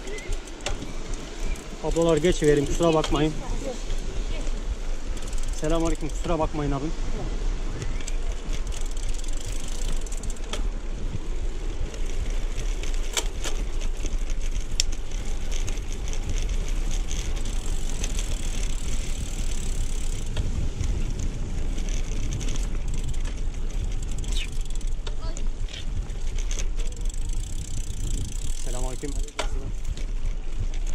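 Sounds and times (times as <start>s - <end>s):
bicycle tyres rolling on concrete: 0.0s - 30.9s.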